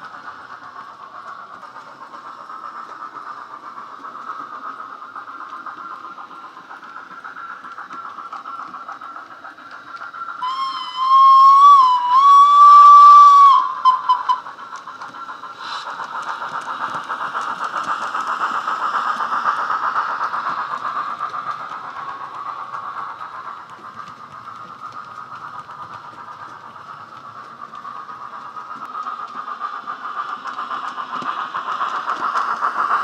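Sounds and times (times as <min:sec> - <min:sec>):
steam locomotive chuffing: 0:00.0 - 0:33.0
steam whistle: 0:10.4 - 0:14.4.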